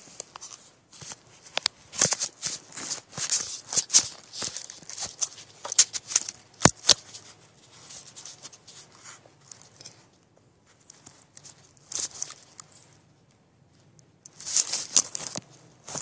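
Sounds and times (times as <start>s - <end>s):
phone handling rustling: 0.0s - 10.0s, 14.3s - 16.0s.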